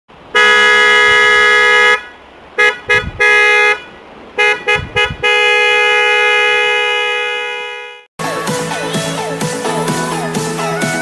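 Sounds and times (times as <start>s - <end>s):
motorcycle horn blasts: 0.3s - 8.1s.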